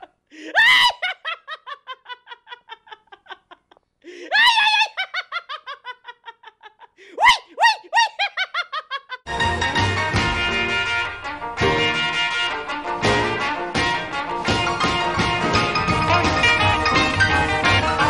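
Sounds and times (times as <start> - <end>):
person laughing: 0.0 - 9.3
music: 9.3 - 18.0.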